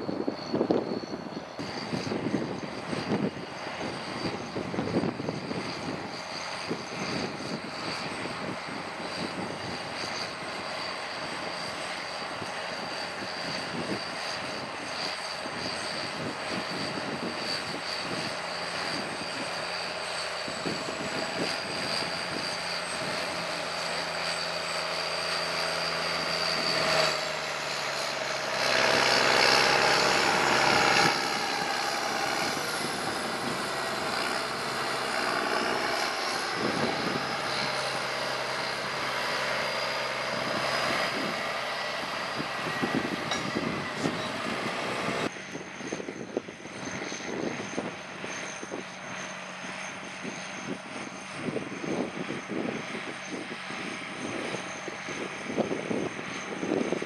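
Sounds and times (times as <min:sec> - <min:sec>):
tractor diesel engine running: 0:18.3 - 0:45.3.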